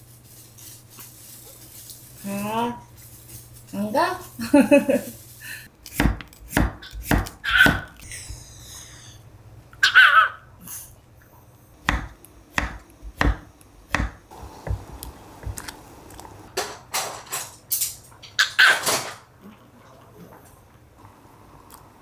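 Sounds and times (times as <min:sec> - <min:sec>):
knife chopping on wooden board: 0:05.9 - 0:08.0, 0:11.8 - 0:15.6
dog barking: 0:07.4 - 0:07.9, 0:09.8 - 0:10.5.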